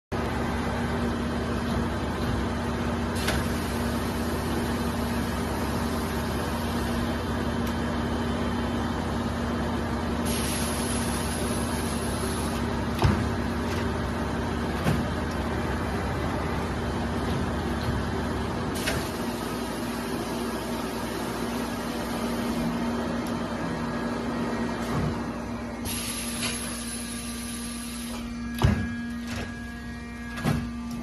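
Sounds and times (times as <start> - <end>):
hiss: 10.3 - 12.6, 25.9 - 28.2.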